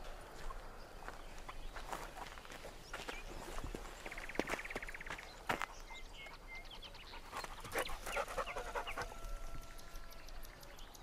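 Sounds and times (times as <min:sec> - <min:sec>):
dog panting: 0:06.8 - 0:09.1.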